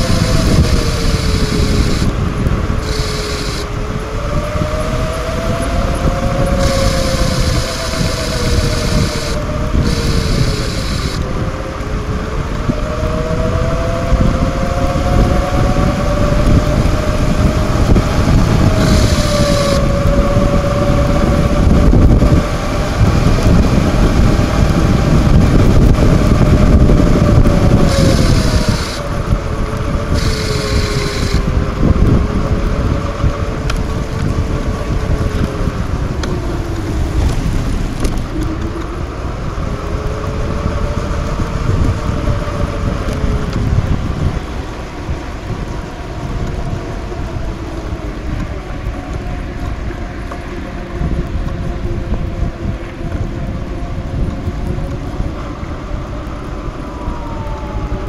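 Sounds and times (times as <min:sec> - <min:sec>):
humming tone: 0:00.0 - 0:44.1
wind rushing over microphone: 0:00.0 - 0:58.0
high hiss: 0:00.4 - 0:02.1, 0:02.8 - 0:03.7, 0:06.6 - 0:11.2, 0:18.8 - 0:19.8, 0:27.9 - 0:29.0, 0:30.2 - 0:31.4.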